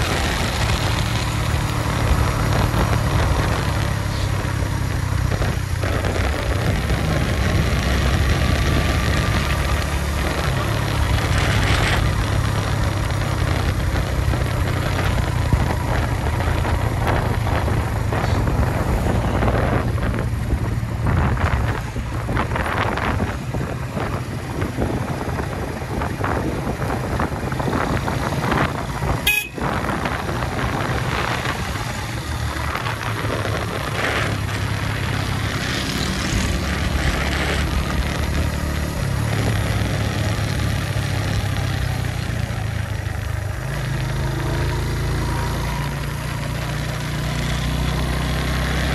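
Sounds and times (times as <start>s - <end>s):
rushing noise: 0.0s - 13.0s
motorcycle engine running: 0.0s - 48.9s
vehicle horn tooting: 29.2s - 29.8s.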